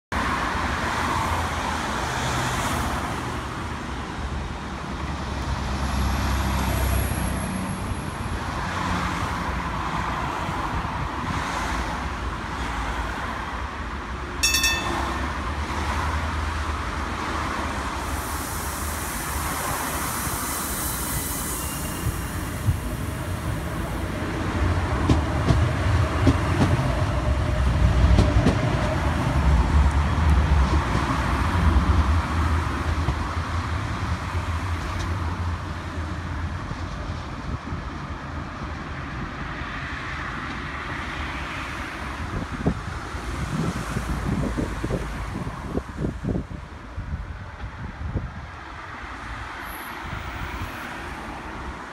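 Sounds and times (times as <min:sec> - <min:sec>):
road traffic passing: 0:00.1 - 0:51.9
tram moving along platform: 0:00.2 - 0:51.9
short electronic chime: 0:14.4 - 0:15.3.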